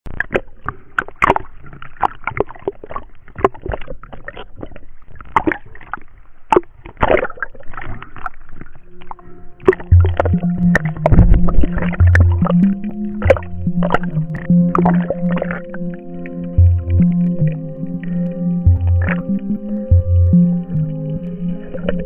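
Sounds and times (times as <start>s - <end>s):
water sloshing and splashing: 0.1s - 22.0s
background music: 9.6s - 22.0s.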